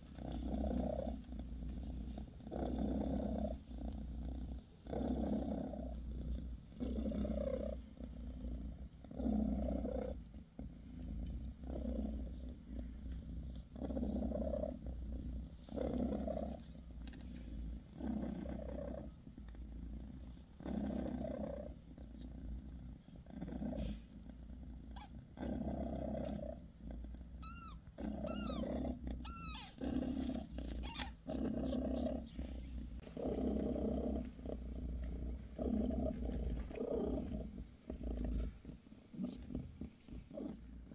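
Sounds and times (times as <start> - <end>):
cat purring: 0.0 - 40.9
kitten squeaking: 27.4 - 29.8, 30.8 - 31.2.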